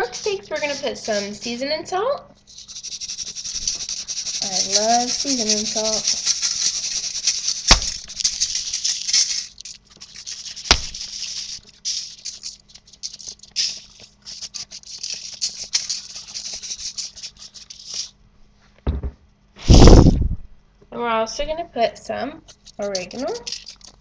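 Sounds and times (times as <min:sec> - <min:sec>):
salt shaker rattling: 0:00.0 - 0:18.2, 0:22.4 - 0:24.0.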